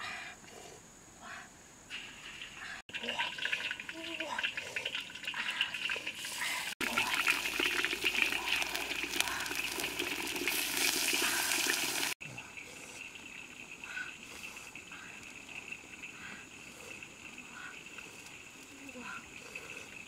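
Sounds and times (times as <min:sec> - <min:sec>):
quiet steady background: 0:00.0 - 0:10.4, 0:11.2 - 0:20.0
fish sizzling in hot oil: 0:03.2 - 0:12.2.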